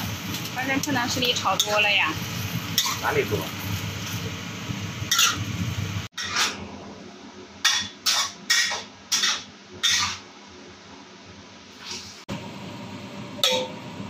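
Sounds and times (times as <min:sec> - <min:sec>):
spatula scraping a wok: 0:00.0 - 0:04.3, 0:05.1 - 0:05.5, 0:06.1 - 0:06.6, 0:07.7 - 0:10.3, 0:11.7 - 0:12.2
food sizzling: 0:00.0 - 0:07.0, 0:07.6 - 0:10.3.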